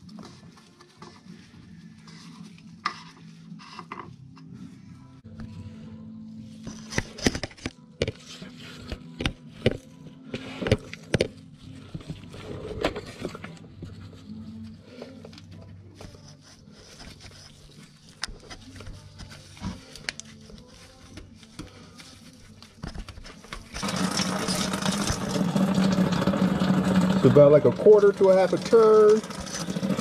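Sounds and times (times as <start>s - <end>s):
hand tools clicking and scraping: 22.9s - 30.0s.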